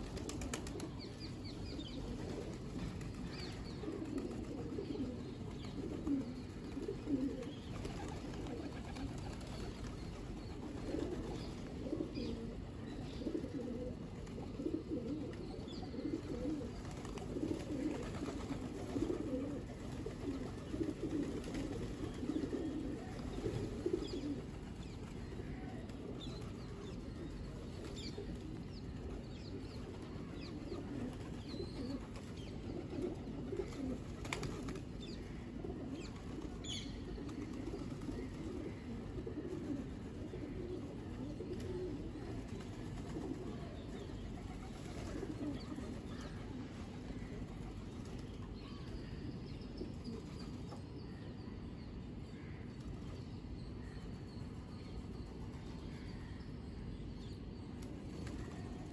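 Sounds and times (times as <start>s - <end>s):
pigeons cooing: 0.0s - 49.1s, 49.7s - 50.6s.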